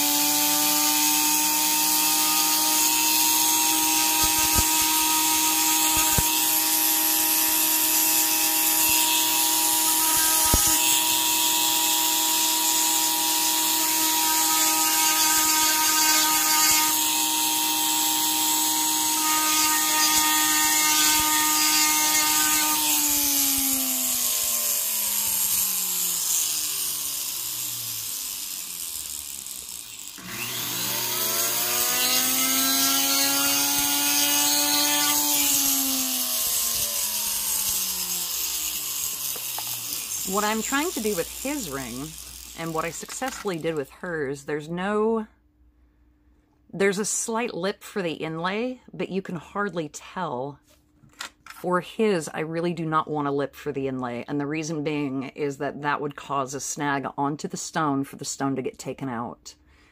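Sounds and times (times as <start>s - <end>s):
rotary tool sanding with grinding hiss: 0.0s - 18.6s, 19.2s - 43.6s.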